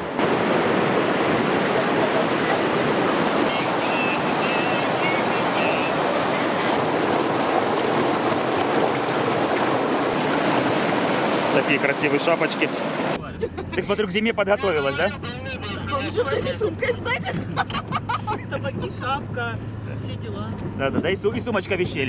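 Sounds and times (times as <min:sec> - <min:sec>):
river rushing: 0:00.0 - 0:13.2.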